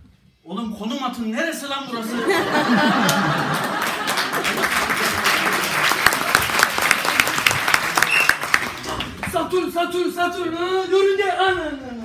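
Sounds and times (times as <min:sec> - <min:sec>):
audience applause: 0:02.6 - 0:09.3.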